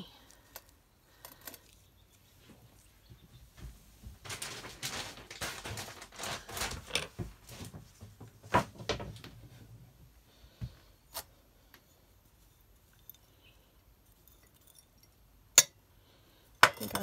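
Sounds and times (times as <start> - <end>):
rustling handling noises: 0.0 - 10.9.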